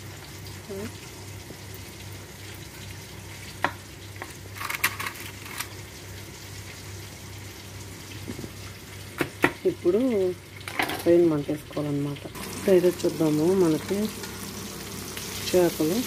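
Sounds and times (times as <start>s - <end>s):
fish sizzling on a tray: 0.0s - 16.0s
knife scraping foil: 4.5s - 5.8s.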